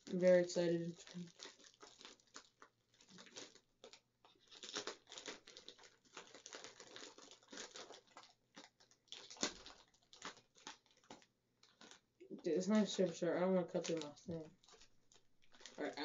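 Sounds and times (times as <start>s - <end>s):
knife cutting plastic bag: 0.0s - 12.0s, 13.8s - 16.0s
plastic bag crinkling and tearing: 0.0s - 16.0s.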